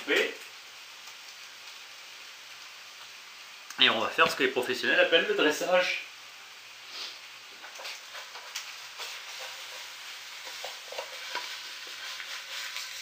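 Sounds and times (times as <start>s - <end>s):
faint fish sizzling: 0.0s - 13.0s
utensil scraping in frying pan: 6.6s - 13.0s.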